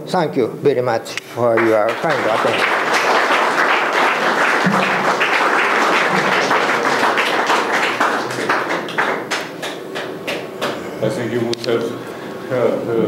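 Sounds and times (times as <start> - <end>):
audience applauding: 1.4 - 10.8.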